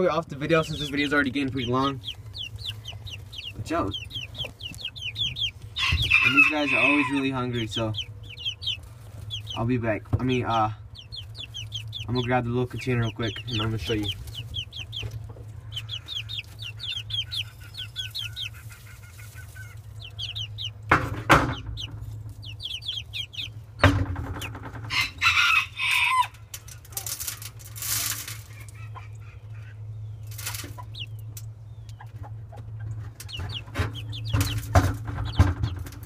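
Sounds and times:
chicks peeping and clucking: 0.0 - 36.0
steady low hum: 0.1 - 6.1
loud rustles and knocks: 20.9 - 22.4, 23.8 - 24.9, 33.0 - 36.0.

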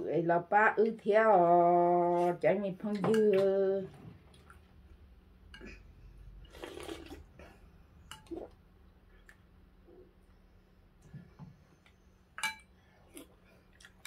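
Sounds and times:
spoon clinking against bowls: 12.4 - 12.7.

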